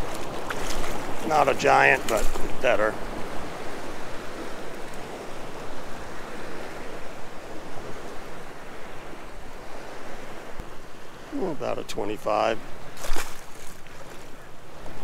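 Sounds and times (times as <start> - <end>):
water wash: 0.0 - 3.0.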